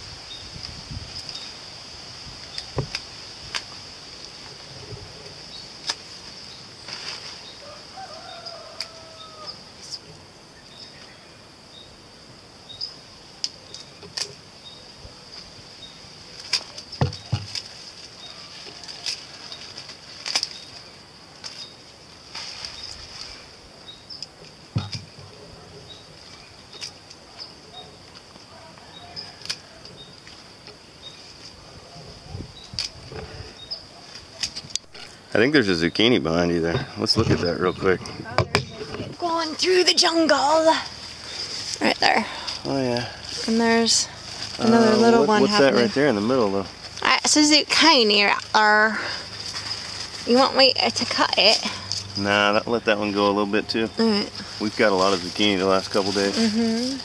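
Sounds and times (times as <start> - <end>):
leaves rustling: 0.0 - 57.0
scissors snipping leaves: 16.3 - 17.8, 18.4 - 20.8, 29.2 - 30.0.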